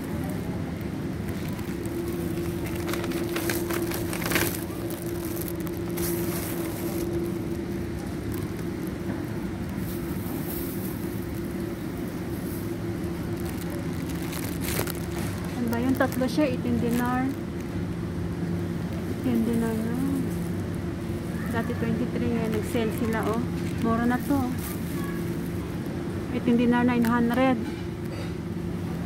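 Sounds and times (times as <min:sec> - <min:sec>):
shopping cart rolling on tiles: 0:01.3 - 0:08.6.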